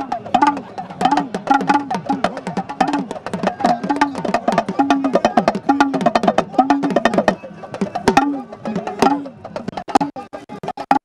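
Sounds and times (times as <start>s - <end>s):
fast drumming: 0.0s - 11.0s.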